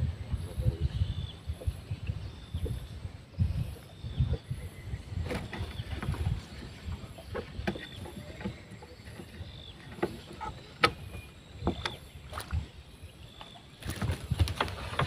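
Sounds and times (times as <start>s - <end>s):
low rumble of water: 0.0s - 15.0s
knocks and clicks on boat: 4.2s - 12.8s, 13.4s - 15.0s.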